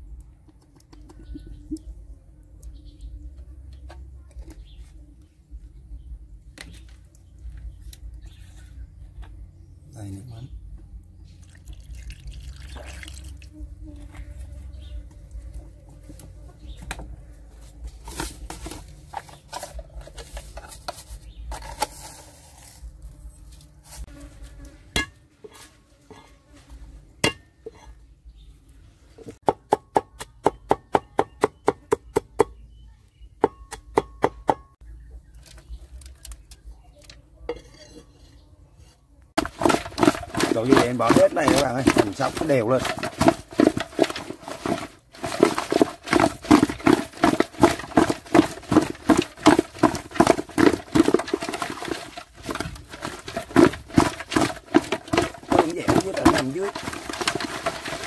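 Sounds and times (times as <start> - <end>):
cleaver chopping on wooden board: 33.4 - 34.7
handling clicks and knocks: 39.4 - 58.0.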